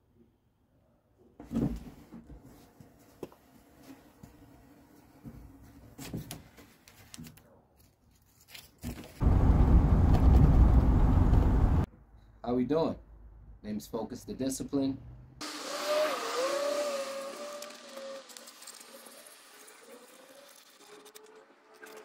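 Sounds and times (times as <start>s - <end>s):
low rumble of driving: 9.2s - 11.9s.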